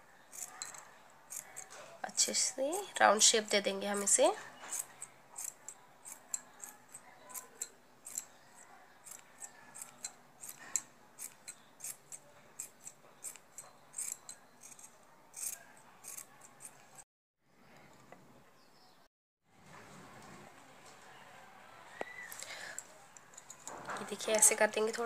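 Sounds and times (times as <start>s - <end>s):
scissors snipping yarn: 0.3s - 17.0s.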